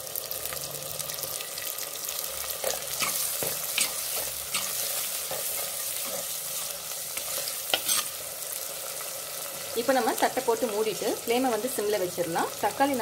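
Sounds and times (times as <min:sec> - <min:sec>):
vegetables sizzling in hot oil: 0:00.0 - 0:13.0
metal spoon scraping a pot: 0:07.2 - 0:08.2.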